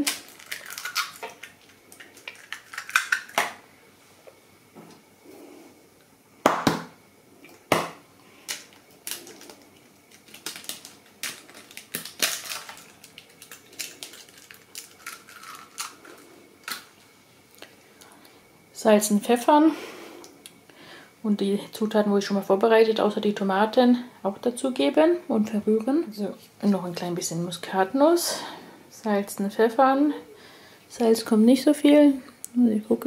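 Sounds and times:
eggs cracking against a bowl: 0.0s - 3.6s, 7.5s - 16.9s
eggshell crackles: 0.0s - 3.7s, 7.5s - 17.8s.

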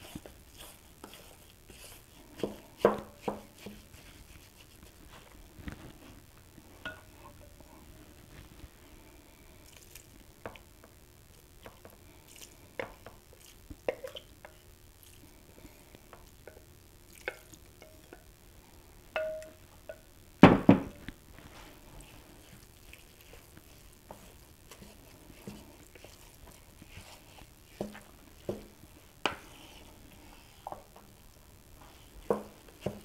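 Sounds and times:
wooden spatula scraping: 0.0s - 9.0s, 21.3s - 33.0s
clinks and taps: 19.2s - 20.0s.

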